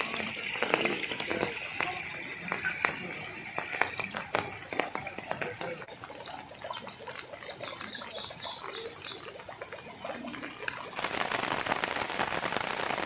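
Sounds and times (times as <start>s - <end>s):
falling rain hiss: 0.0s - 5.9s, 7.3s - 13.0s
bird chirping: 6.6s - 9.4s.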